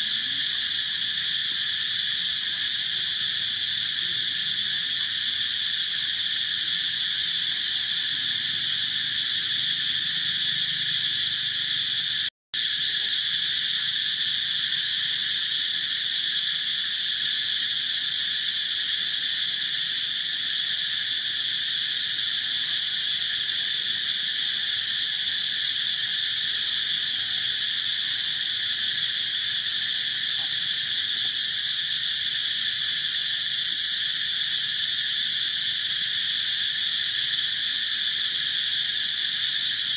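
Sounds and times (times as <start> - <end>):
insects buzzing: 0.0 - 39.9.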